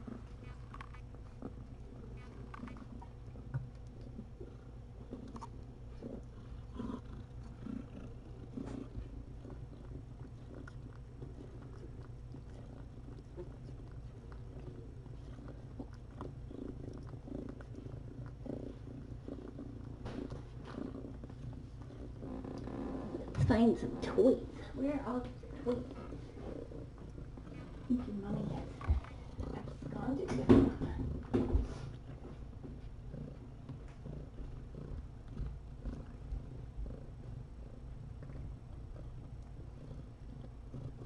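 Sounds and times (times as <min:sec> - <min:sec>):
cat purring: 0:00.0 - 0:41.0
soft rustles and taps: 0:25.2 - 0:36.6.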